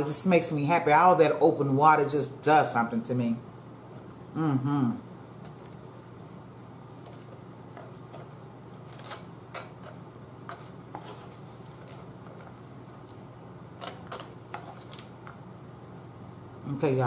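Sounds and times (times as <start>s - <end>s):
steady low hum: 0.0s - 17.0s
plastic fork scraping styrofoam: 8.9s - 12.1s.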